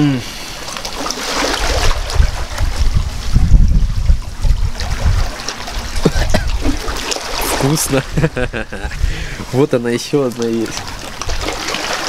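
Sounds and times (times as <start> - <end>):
hissing wash of water: 0.0 - 12.0
wind buffeting microphone: 1.4 - 9.7.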